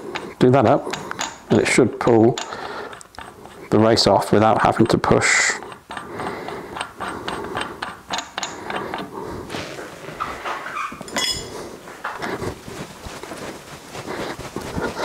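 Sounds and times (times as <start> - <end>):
light metallic clicks and knocks: 0.1 - 3.6, 4.6 - 9.1
metal spanner clinking: 0.8 - 3.6, 4.5 - 9.1, 11.1 - 11.5.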